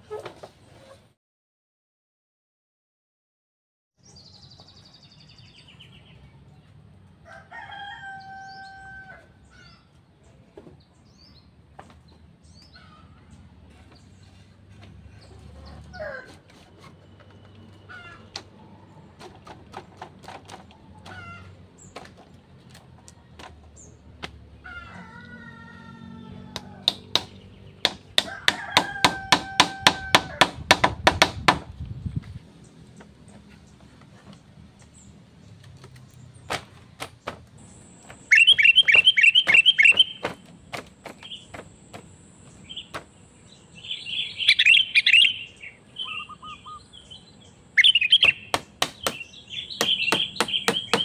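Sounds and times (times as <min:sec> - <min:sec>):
rooster crowing: 0:07.2 - 0:09.4, 0:24.6 - 0:27.0, 0:28.2 - 0:30.4
short bird calls: 0:37.7 - 0:40.4, 0:43.9 - 0:51.0.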